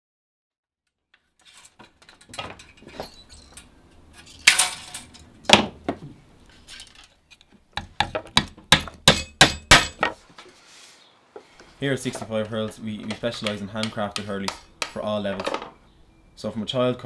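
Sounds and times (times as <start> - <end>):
hammer tapping nails: 7.8 - 10.1, 12.1 - 15.6
hand tool scraping wood: 10.0 - 15.0.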